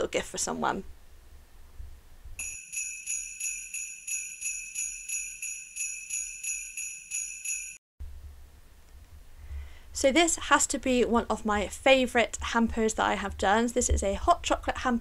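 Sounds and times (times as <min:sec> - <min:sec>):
jingle bells shaken: 0:02.4 - 0:07.8.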